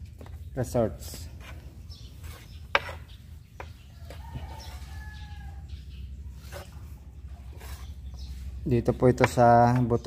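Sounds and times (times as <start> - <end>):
rooster crowing: 3.9 - 5.8.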